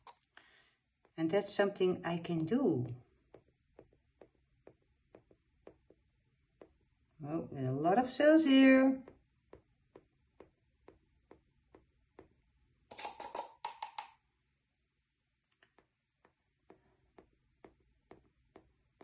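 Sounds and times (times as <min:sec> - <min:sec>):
stick tapping paint on canvas: 0:02.4 - 0:07.1, 0:09.0 - 0:12.4, 0:13.1 - 0:14.2, 0:15.7 - 0:19.0
scratchy strokes: 0:12.9 - 0:13.7.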